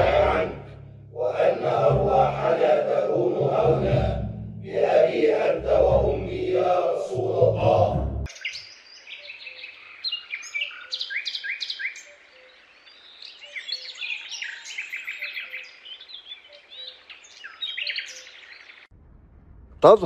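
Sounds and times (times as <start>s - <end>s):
small birds chirping: 8.3s - 18.9s.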